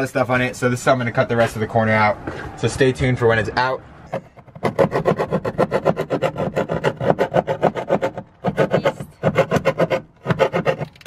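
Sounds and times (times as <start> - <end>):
hand saw cutting countertop: 4.1 - 11.0.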